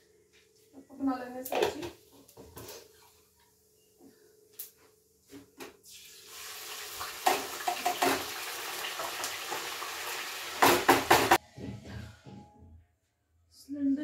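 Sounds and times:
food sizzling in pan: 5.9s - 11.4s.

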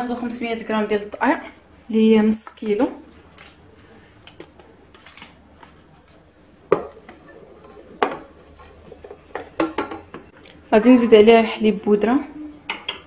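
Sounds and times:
bowls and utensils clicking: 6.7s - 10.3s, 12.7s - 13.0s.

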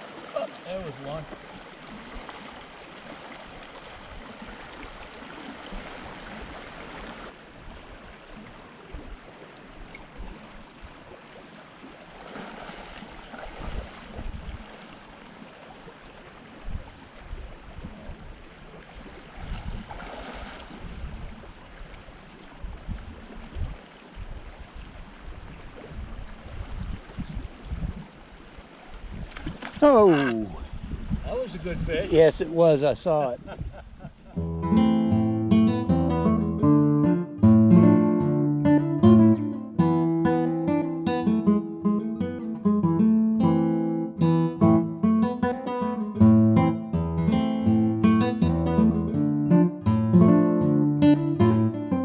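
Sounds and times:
rushing river water: 0.0s - 33.4s.

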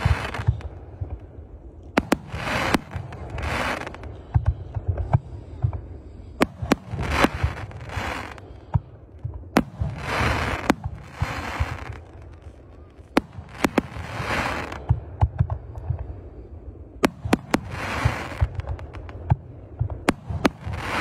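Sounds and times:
hissing firework crackle: 0.0s - 0.7s, 1.8s - 4.2s, 6.4s - 8.6s, 9.5s - 14.9s, 17.0s - 21.0s.

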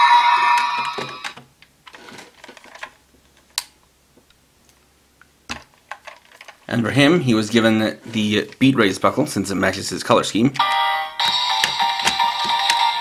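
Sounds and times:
electronic toy sound effect: 0.0s - 1.4s
plastic toy clicks and taps: 10.6s - 12.9s.

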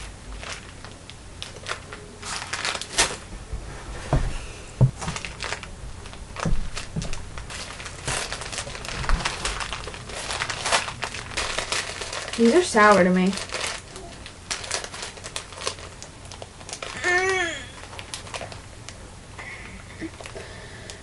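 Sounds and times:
rustling and crinkling: 0.0s - 19.0s
soft low thumps: 3.2s - 5.3s, 5.9s - 7.4s.

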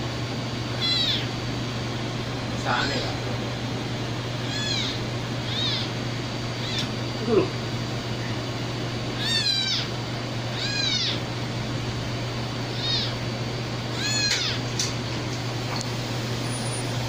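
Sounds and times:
steady low hum: 0.0s - 17.0s
kitten mewing: 0.8s - 1.4s, 4.4s - 7.6s, 9.2s - 9.9s, 10.5s - 11.2s, 12.7s - 13.2s, 13.9s - 14.6s.

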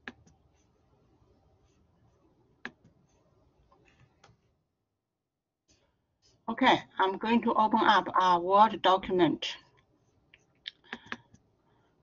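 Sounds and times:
computer mouse clicks: 0.0s - 0.4s, 2.6s - 3.0s, 10.3s - 11.5s.

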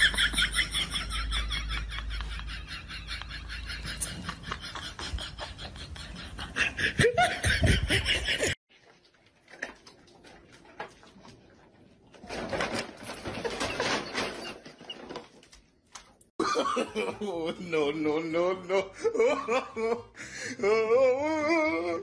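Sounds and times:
people laughing: 0.0s - 8.6s, 16.4s - 22.0s.

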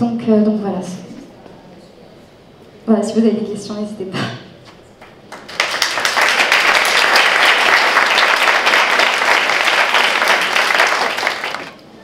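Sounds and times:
audience applauding: 5.0s - 11.8s.

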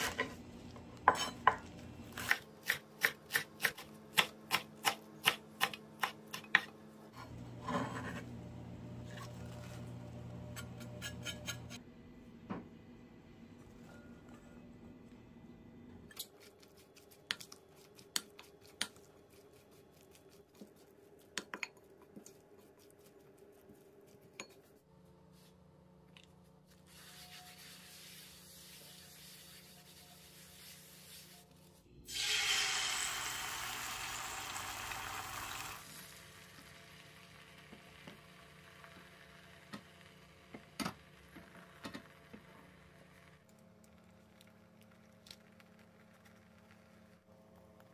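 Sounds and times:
egg sizzling in hot pan: 26.9s - 31.4s, 32.1s - 43.5s.

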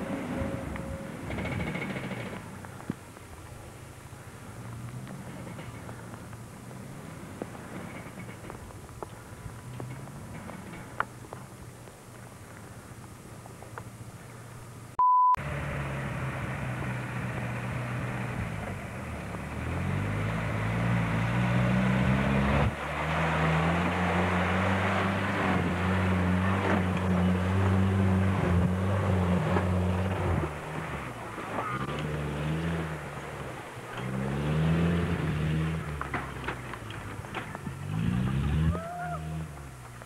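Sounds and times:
off-roader engine revving hard: 0.0s - 2.4s, 15.4s - 39.6s.

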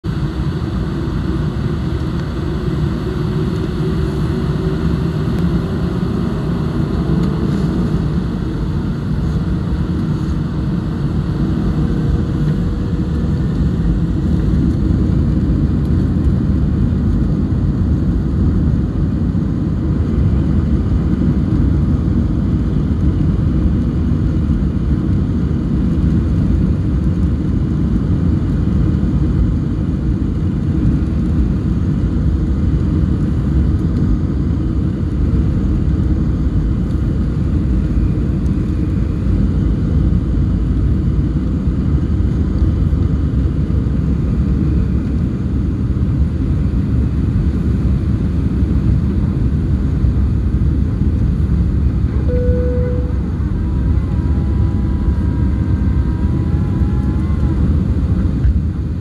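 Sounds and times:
jet engines rumbling: 0.1s - 59.0s
engine whistle rising in pitch: 52.2s - 57.9s.

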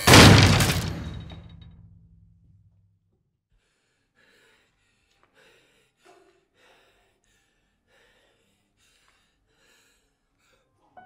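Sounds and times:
person gasping breaths: 3.5s - 11.0s.

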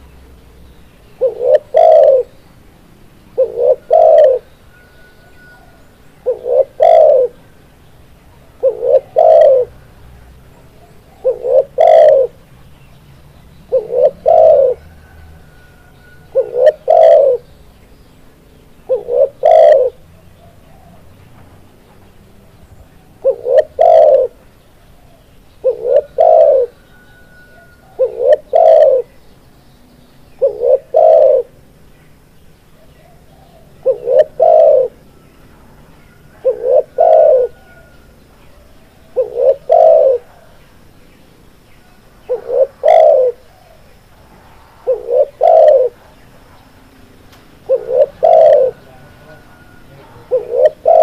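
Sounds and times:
dove cooing: 1.1s - 2.4s, 3.3s - 7.6s, 8.3s - 12.7s, 13.7s - 17.5s, 18.8s - 21.1s, 23.0s - 29.2s, 30.4s - 31.6s, 32.8s - 40.8s, 41.9s - 43.9s, 44.8s - 46.2s, 47.5s - 51.0s.

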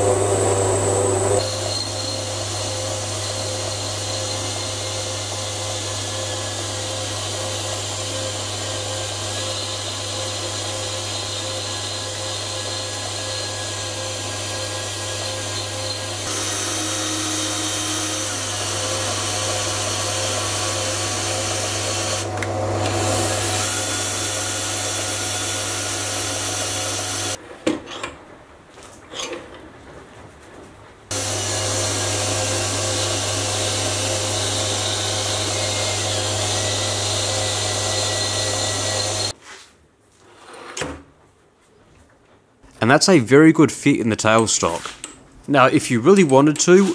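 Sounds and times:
lathe motor hum and whine: 0.0s - 27.4s, 31.1s - 39.3s.

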